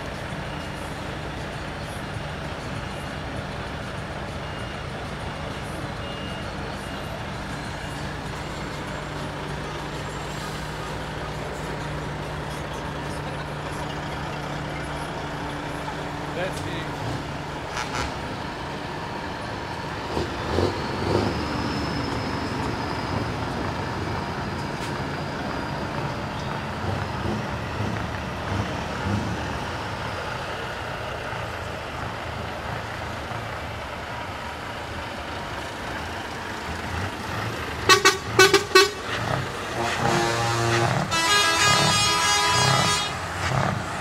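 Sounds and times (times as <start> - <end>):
truck engines driving past: 0.0 - 44.0
truck horn short toots: 37.8 - 43.2.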